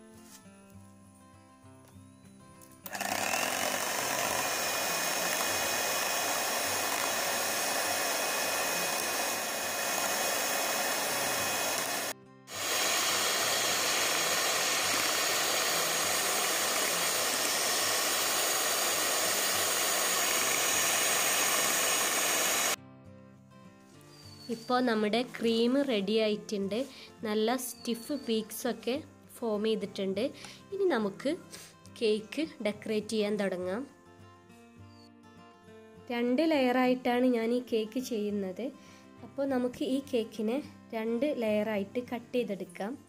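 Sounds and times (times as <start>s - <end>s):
electric hand mixer whipping cream: 2.9s - 22.8s.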